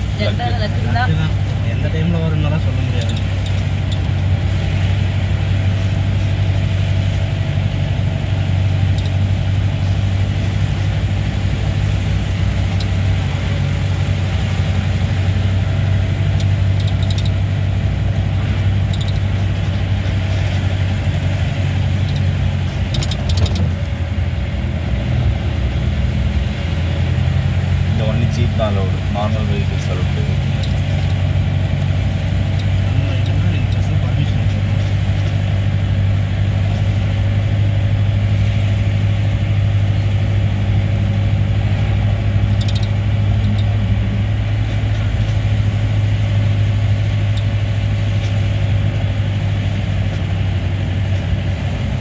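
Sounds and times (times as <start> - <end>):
vehicle engine droning: 0.0 - 52.0
vehicle body rattles: 15.0 - 24.2.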